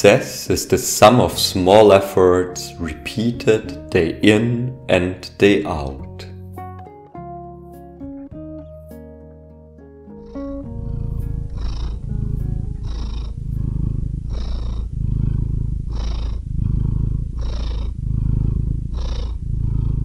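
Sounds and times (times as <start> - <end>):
cat purring: 10.1 - 20.0.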